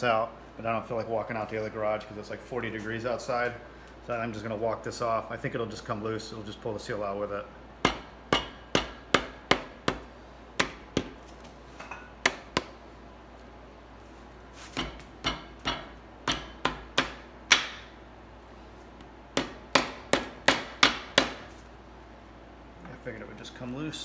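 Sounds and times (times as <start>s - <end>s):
sharp metal knocks: 7.8s - 10.0s, 14.8s - 17.9s.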